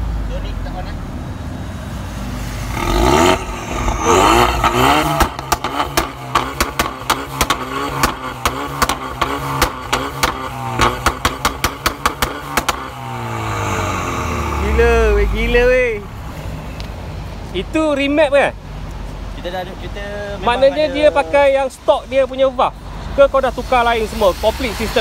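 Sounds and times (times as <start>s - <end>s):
car engine revving: 0.0s - 17.5s
exhaust pops and crackles: 2.7s - 13.5s.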